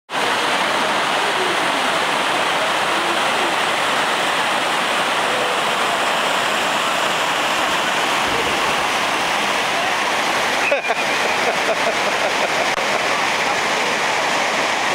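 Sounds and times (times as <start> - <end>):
creek water rushing over rocks: 0.1 - 14.9.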